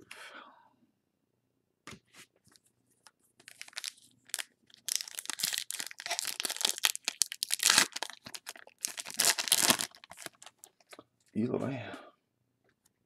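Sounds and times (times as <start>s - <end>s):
foil wrapper crinkling and tearing: 3.4s - 11.0s.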